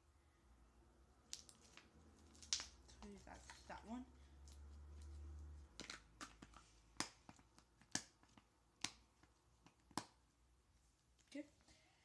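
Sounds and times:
slime clicking and popping: 0:01.3 - 0:03.6, 0:05.7 - 0:10.2.

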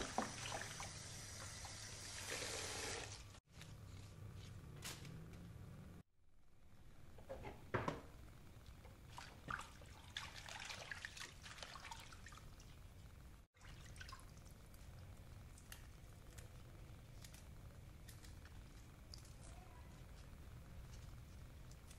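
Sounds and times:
water dripping and trickling: 0:09.1 - 0:13.0, 0:13.6 - 0:14.9.

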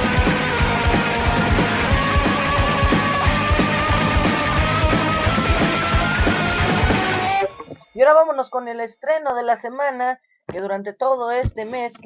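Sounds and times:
steady drum beat: 0:00.0 - 0:07.7
loud rock song: 0:00.0 - 0:07.8.

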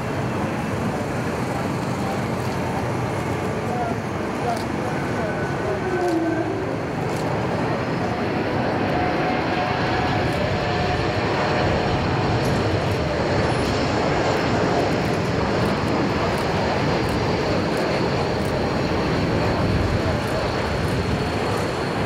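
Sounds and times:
airliner jet rush flying past: 0:00.0 - 0:22.0.

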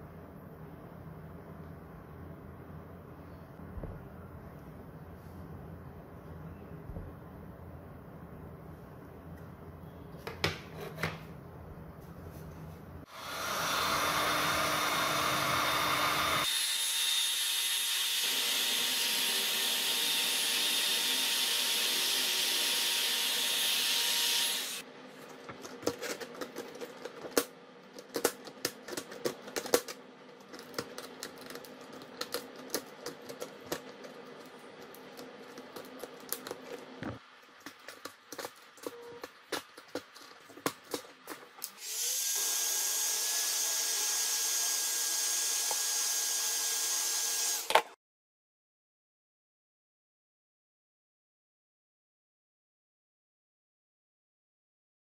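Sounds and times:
heat gun blowing: 0:13.1 - 0:24.8.

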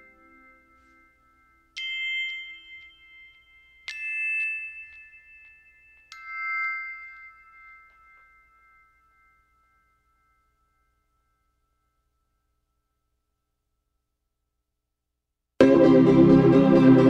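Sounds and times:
bell-like struck notes: 0:00.0 - 0:13.5.

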